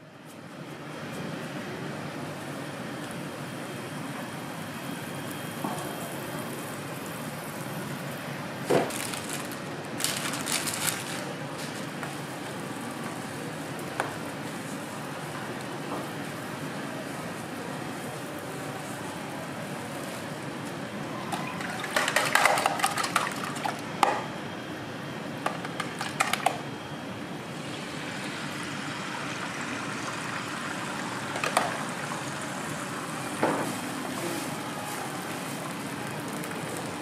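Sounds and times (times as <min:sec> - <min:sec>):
spatter of crackles: 0:08.7 - 0:12.1, 0:35.2 - 0:37.0.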